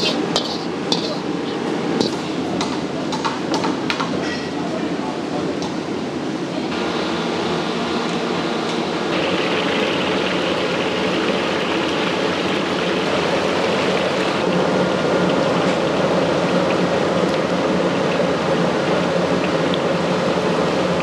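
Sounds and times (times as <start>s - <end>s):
fish deep-frying in oil: 9.1s - 18.4s.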